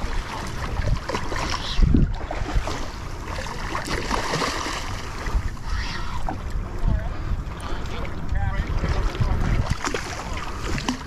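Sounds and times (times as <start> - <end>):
fish thrashing and splashing: 0.0 - 6.4
wind buffeting microphone: 0.0 - 11.0.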